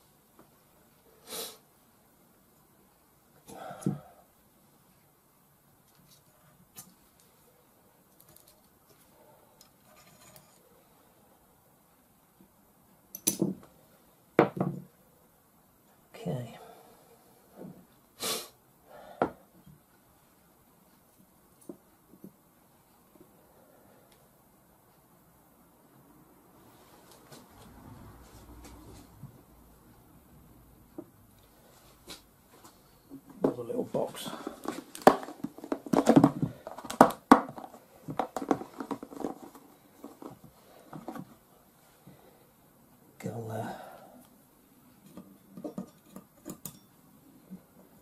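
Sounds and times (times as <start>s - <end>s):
person sniffing: 1.1s - 1.7s, 18.2s - 19.1s
plastic box rustling: 34.2s - 41.4s.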